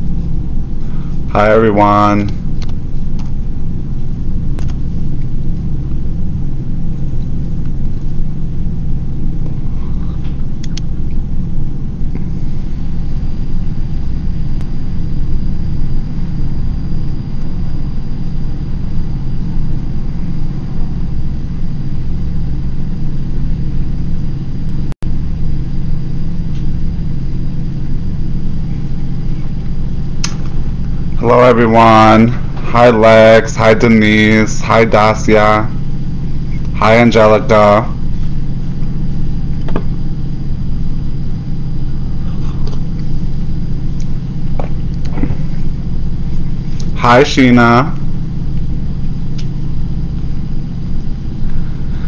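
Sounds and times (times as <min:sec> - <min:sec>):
faint high whine: 0:00.0 - 0:52.0
loud low hum: 0:00.0 - 0:52.0.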